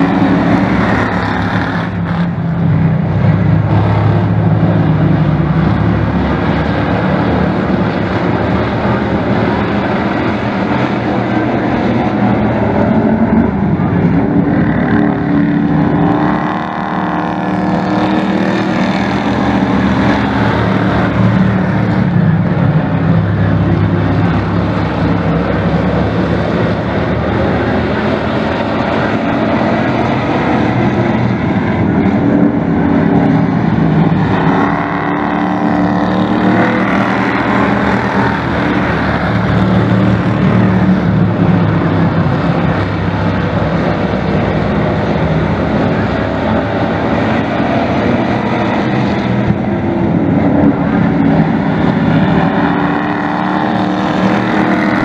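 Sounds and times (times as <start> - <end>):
race truck engines revving: 0.0 - 55.0.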